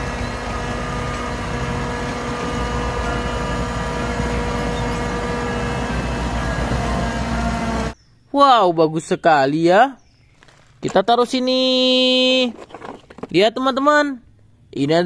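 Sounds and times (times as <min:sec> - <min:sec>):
truck diesel engine running: 0:00.0 - 0:08.0.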